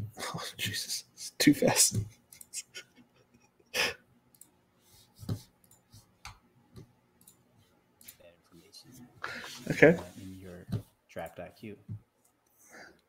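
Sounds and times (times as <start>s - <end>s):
short breathy laugh: 2.5s - 4.0s.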